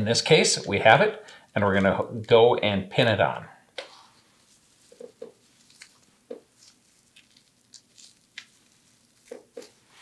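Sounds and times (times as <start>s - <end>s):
paper rustling: 3.9s - 10.0s.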